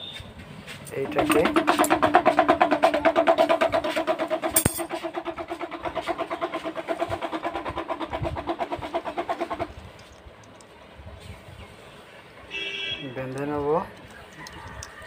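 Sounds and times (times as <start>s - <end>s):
engine pulsing steadily: 1.0s - 10.8s.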